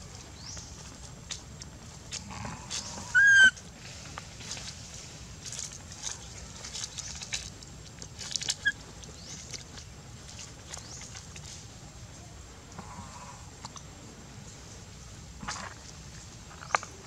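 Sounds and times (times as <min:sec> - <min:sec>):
scuffs and rustles on dry leaves: 0:00.0 - 0:12.3
steady low rumble: 0:00.0 - 0:17.0.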